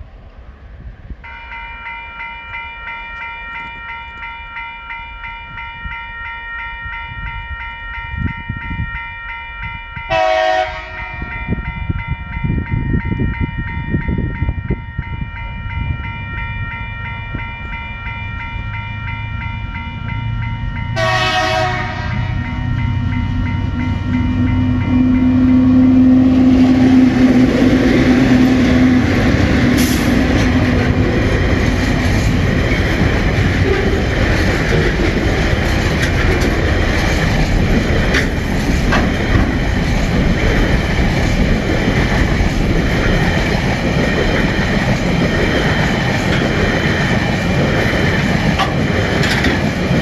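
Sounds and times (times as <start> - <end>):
low rumble of train: 0.0 - 50.0
level crossing warning bells: 1.2 - 50.0
train horn: 10.0 - 11.8, 21.0 - 31.3.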